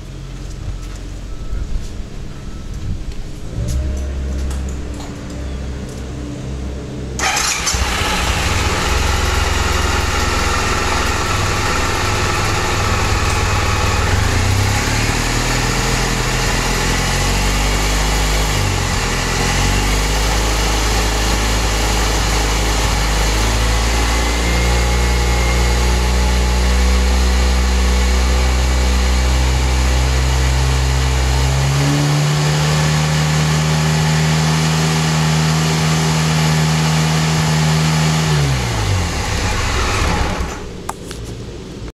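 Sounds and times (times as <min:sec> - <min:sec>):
scooter engine starting and revving: 0:07.1 - 0:40.9.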